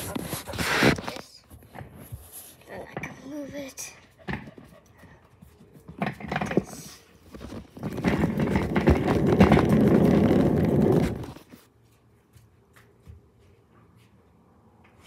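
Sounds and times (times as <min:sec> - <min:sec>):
rough rubbing rustle on microphone: 0:00.0 - 0:01.4, 0:02.0 - 0:02.7.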